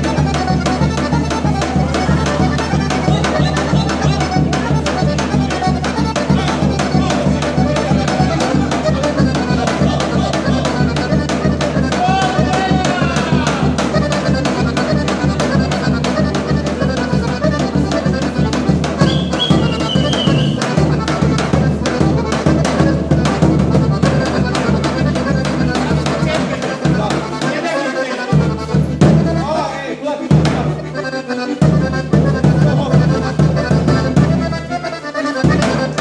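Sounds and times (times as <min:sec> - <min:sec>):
bass drum beaten: 0:00.0 - 0:27.6, 0:28.3 - 0:29.5, 0:30.3 - 0:34.8
melodic folk accompaniment: 0:00.0 - 0:36.0.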